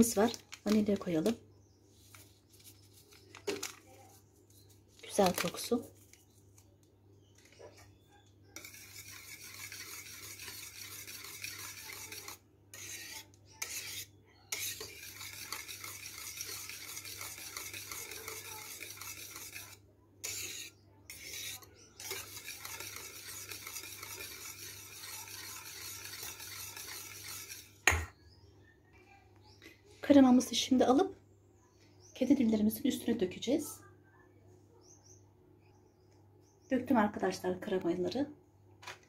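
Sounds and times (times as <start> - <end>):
whisk scraping a metal pot: 8.4 - 28.0.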